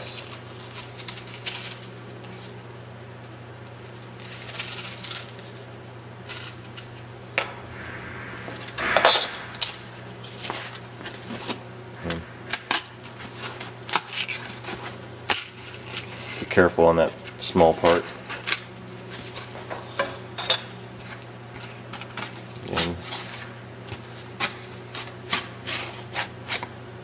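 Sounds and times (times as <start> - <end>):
foil crinkling: 0.2 - 1.9, 3.8 - 5.6.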